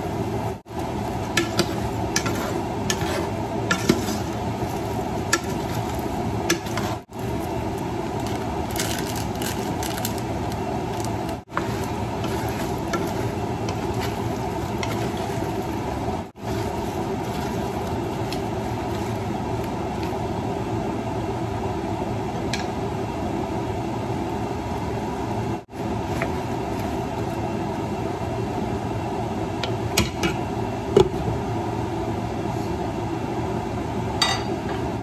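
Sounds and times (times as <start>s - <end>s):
steaming pot rushing: 0.7s - 20.3s.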